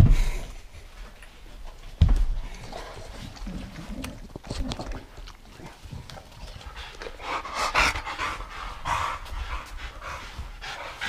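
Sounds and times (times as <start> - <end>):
dogs panting: 2.4 - 11.0.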